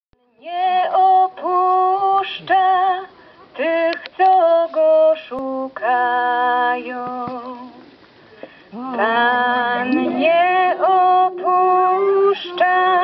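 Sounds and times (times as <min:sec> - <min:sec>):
woman singing a chant solo: 0:08.7 - 0:13.0.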